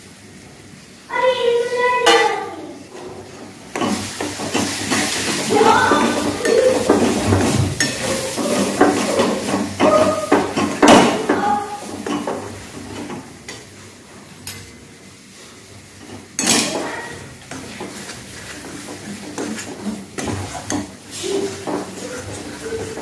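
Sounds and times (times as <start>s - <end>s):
onions sizzling: 0.0s - 14.2s, 14.8s - 23.0s
utensil scraping a pot: 3.0s - 12.4s, 16.4s - 23.0s
utensil clinking against pot: 3.7s - 13.6s.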